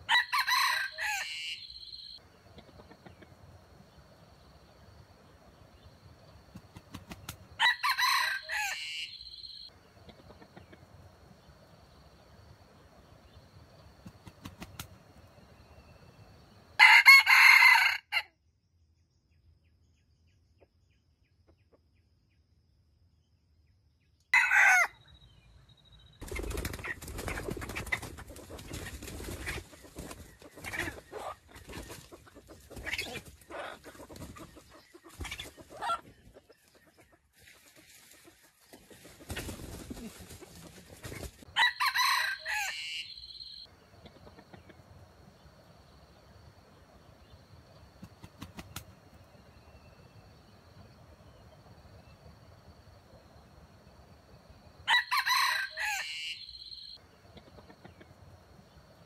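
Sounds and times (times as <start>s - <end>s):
rooster crowing: 0.0s - 1.9s, 7.6s - 9.5s, 16.8s - 18.3s, 24.4s - 25.0s, 41.5s - 43.6s, 54.9s - 57.0s
rustling in leaf litter: 37.4s - 41.4s.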